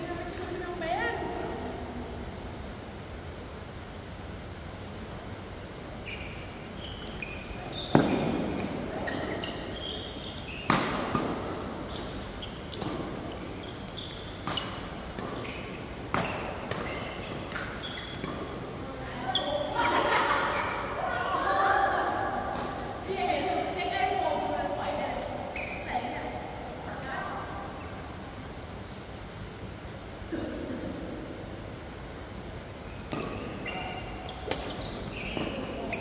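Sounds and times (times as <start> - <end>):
shoes squeaking on court: 6.0 - 21.4, 25.5 - 26.2, 32.8 - 36.0
rackets hitting shuttlecock: 34.4 - 34.8.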